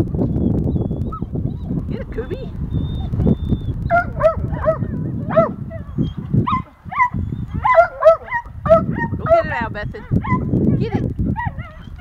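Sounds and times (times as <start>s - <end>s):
dog barking: 3.9s - 5.6s, 6.4s - 10.5s.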